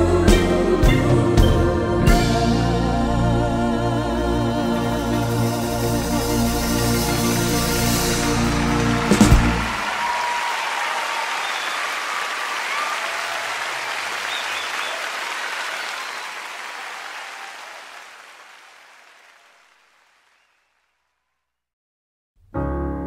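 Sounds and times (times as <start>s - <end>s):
audience applauding: 6.8s - 21.0s.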